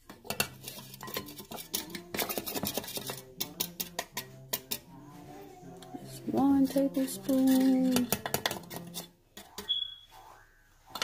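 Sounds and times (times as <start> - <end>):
background music: 0.0 - 11.0
spoon tapping against bowl: 0.3 - 4.9, 7.5 - 8.9.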